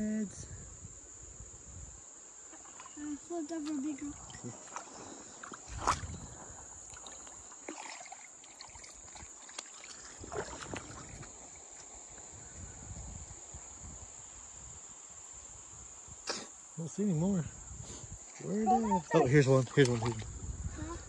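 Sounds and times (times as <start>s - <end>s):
insects chirring: 0.0s - 21.0s
feet sloshing through creek water: 2.5s - 12.6s, 18.0s - 21.0s.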